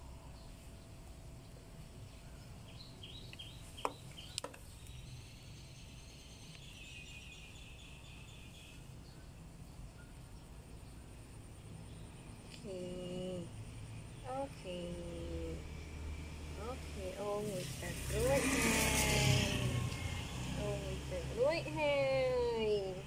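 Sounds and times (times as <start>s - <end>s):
faint high chirping: 0.0s - 13.3s
low steady hum: 0.0s - 23.0s.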